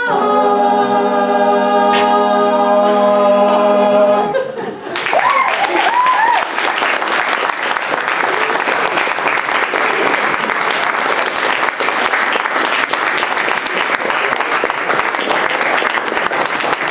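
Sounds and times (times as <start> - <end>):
audience applauding: 4.9 - 16.9.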